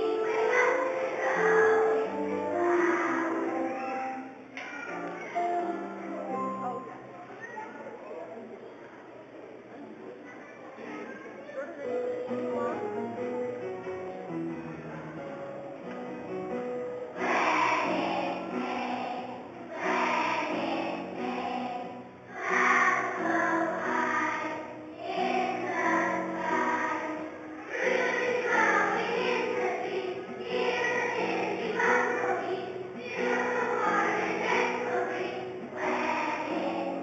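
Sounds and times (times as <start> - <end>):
children's choir singing: 0.0 - 4.5, 14.3 - 37.0
instrumental accompaniment: 12.0 - 37.0.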